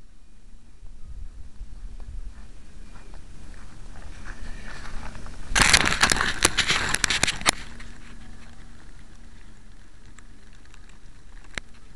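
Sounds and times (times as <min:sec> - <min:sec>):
camera handling noise in grass: 0:04.8 - 0:11.9.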